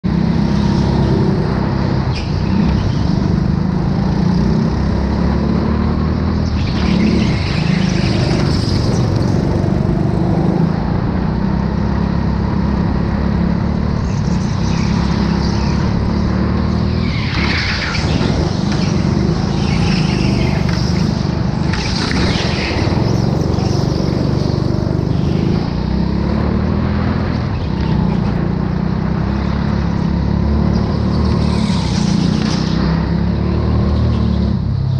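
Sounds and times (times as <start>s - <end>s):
go-kart motor droning: 0.0s - 34.9s
high sweeping sounds: 14.0s - 25.8s.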